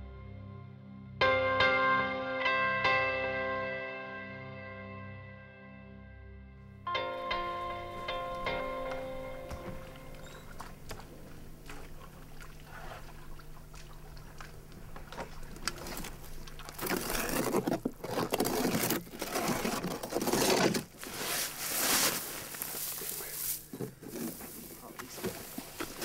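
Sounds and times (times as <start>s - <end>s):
faint steady hum: 6.9s - 19.6s
rough scraping and crunching: 14.7s - 26.0s.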